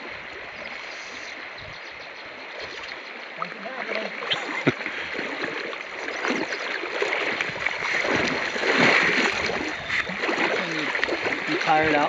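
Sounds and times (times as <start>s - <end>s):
river water flowing: 0.0s - 12.0s
fish splashing at surface: 3.9s - 11.8s.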